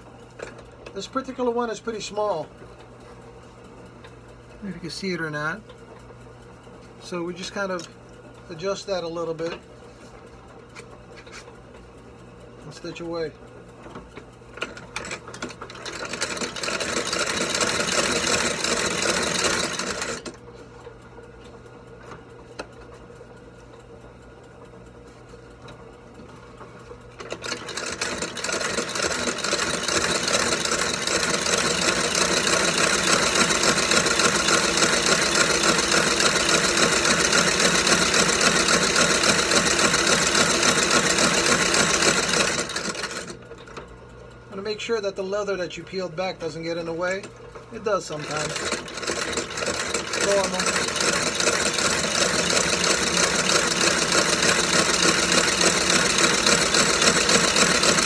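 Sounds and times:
stitching machine running: 12.6s - 20.4s, 26.8s - 43.9s, 46.0s - 58.0s.

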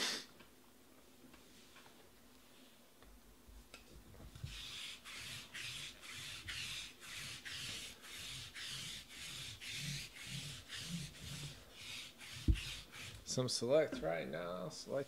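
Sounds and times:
lint roller rubbing on mat: 4.3s - 13.4s.

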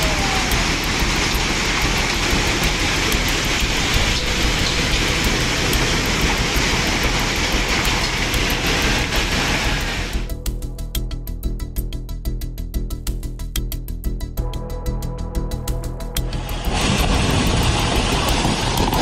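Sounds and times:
debris flow rushing down slope: 0.0s - 10.3s, 16.2s - 19.0s.

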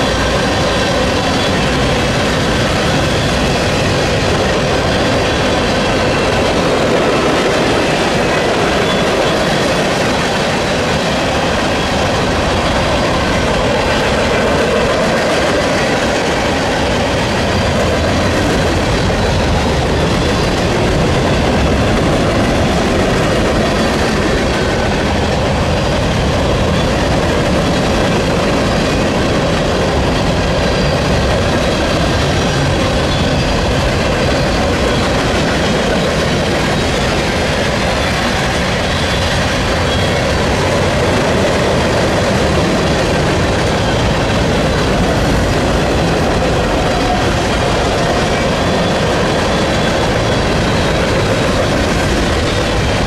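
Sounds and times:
freight train wheels rumbling on rail: 0.0s - 53.0s.

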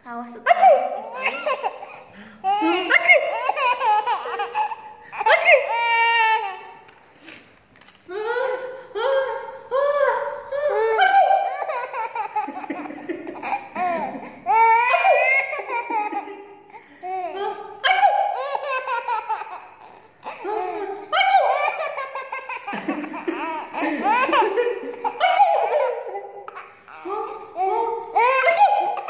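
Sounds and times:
baby laughing: 0.7s - 6.9s, 10.6s - 17.4s, 18.1s - 29.0s.

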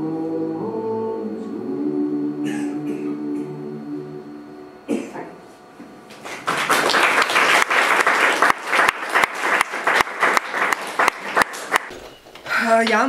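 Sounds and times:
audience applauding: 6.1s - 12.0s.

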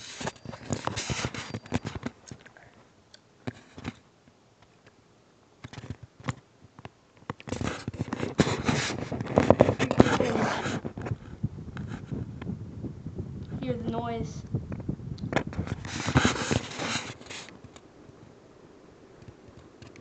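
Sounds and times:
phone handling scraping and clicks: 0.0s - 2.4s, 7.3s - 11.1s.

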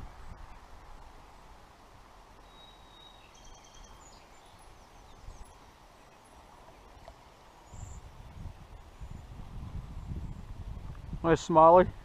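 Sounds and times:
low outdoor background hiss: 0.0s - 12.0s
bird chirps and whistles: 2.4s - 4.2s.

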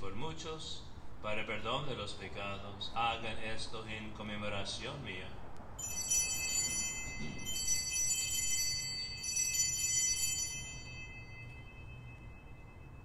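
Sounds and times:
altar bells jingling: 5.8s - 13.0s.

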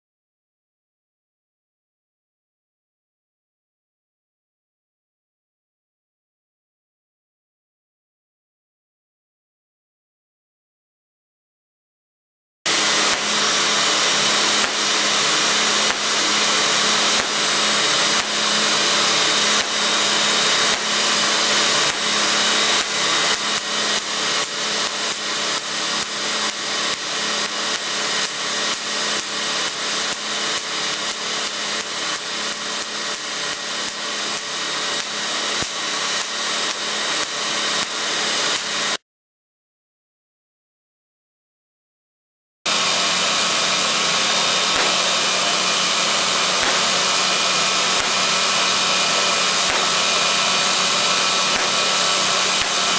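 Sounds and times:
generator motor whirring: 12.7s - 39.0s, 42.7s - 52.9s
sparks cracking: 12.7s - 39.0s, 42.7s - 52.9s.

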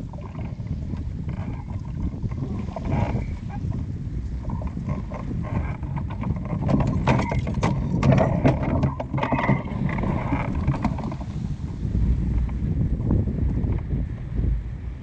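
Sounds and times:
wind buffeting microphone: 0.0s - 15.0s
sharp clicks and knocks: 4.6s - 11.3s.

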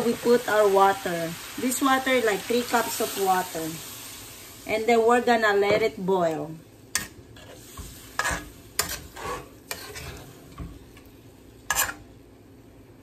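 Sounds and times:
pan sizzling: 0.0s - 12.3s
metal spoon scraping and knocking wok: 7.0s - 10.7s, 11.7s - 12.0s.

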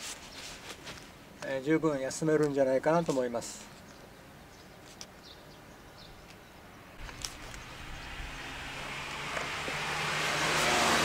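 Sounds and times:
faint outdoor background: 0.0s - 11.0s
road vehicle approaching: 7.0s - 11.0s.

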